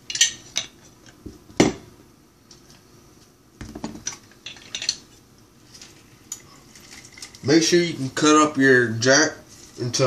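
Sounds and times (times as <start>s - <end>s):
utensils clinking: 4.0s - 5.0s.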